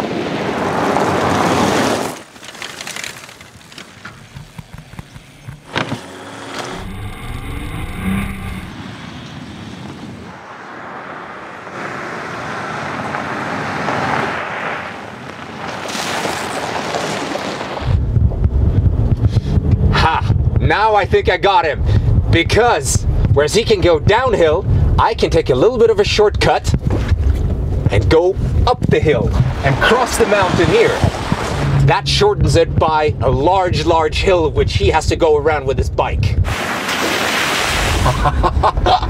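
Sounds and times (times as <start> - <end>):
tyre and wind noise: 0.0 - 39.0
knocks: 4.0 - 6.1
engine low rumble: 4.1 - 9.8, 17.9 - 35.0.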